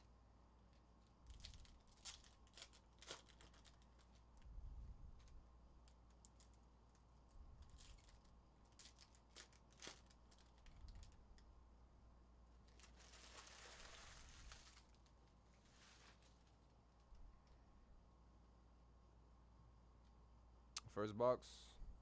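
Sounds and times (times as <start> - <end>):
foil wrapper crinkling and tearing: 1.2 - 4.4, 5.2 - 11.4, 12.6 - 16.7.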